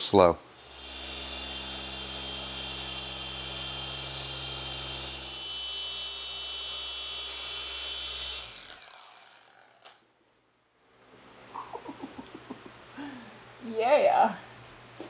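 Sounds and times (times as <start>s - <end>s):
polisher motor whine: 0.6s - 9.8s.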